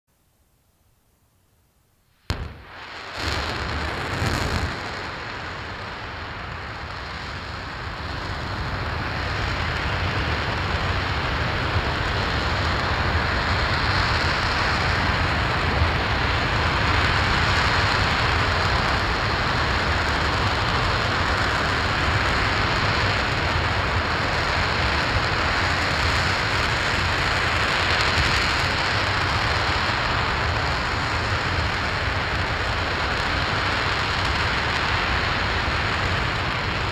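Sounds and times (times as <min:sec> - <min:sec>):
sharp cracks: 0:02.3 - 0:05.8
rocket engine rumble: 0:02.3 - 0:36.9.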